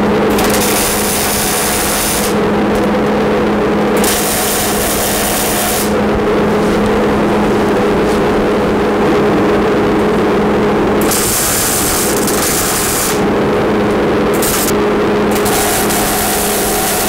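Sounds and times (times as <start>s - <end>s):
extractor hum: 0.0s - 17.0s
welding arc sizzling: 0.0s - 17.0s.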